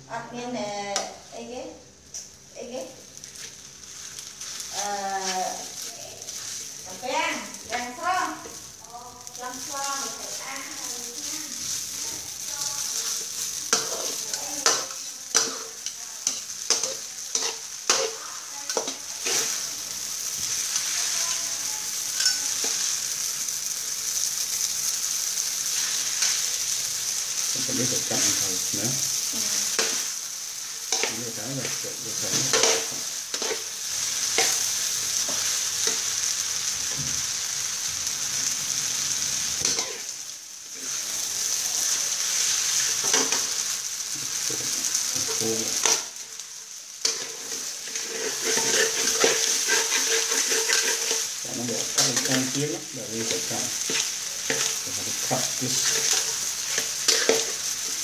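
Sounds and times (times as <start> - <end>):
food sizzling in a wok: 0.0 - 58.0
utensils scraping and clinking on pan: 9.3 - 23.1, 30.8 - 36.2, 39.6 - 40.1, 42.2 - 43.7, 44.5 - 46.2, 47.0 - 58.0.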